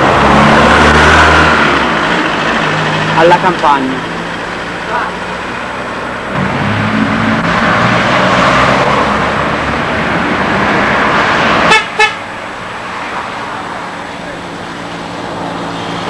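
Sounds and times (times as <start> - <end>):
car passing: 0.0 - 16.0
car horn toots: 11.7 - 12.2.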